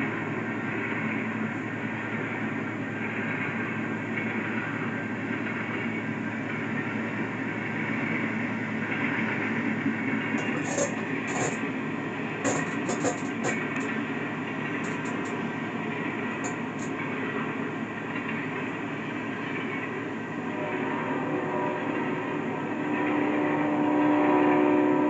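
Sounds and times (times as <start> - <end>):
train cars rolling past: 0.0 - 25.0.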